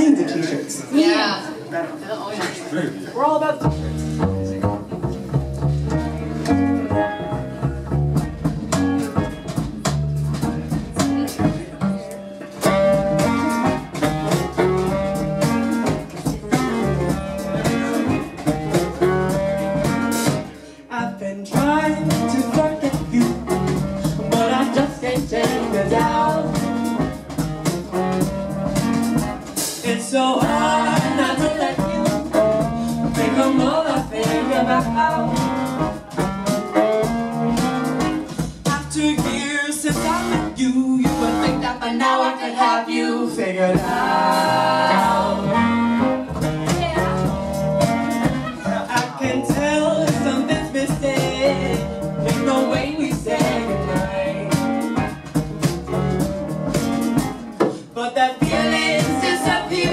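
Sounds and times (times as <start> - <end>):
soul blues band playing: 3.6 - 59.9
women singing: 24.3 - 26.8, 29.9 - 35.5, 39.2 - 45.7, 48.4 - 54.5, 58.0 - 59.9.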